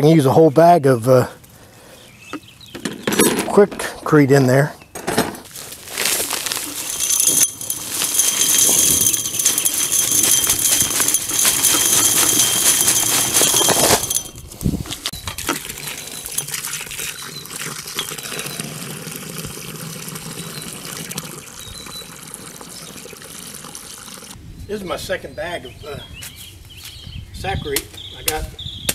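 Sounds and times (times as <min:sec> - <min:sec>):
dry concrete mix pouring: 0:05.5 - 0:24.4
hose running water: 0:05.5 - 0:24.4.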